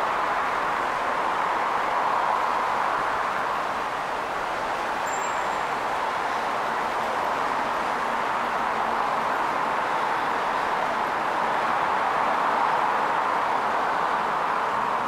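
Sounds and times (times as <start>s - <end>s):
steady vehicle noise: 0.0s - 15.0s.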